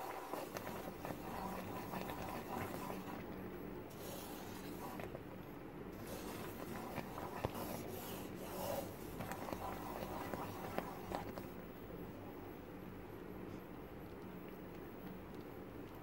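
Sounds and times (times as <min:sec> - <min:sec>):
spatula scraping paste in pan: 0:00.0 - 0:03.3, 0:04.0 - 0:05.1, 0:06.0 - 0:11.4.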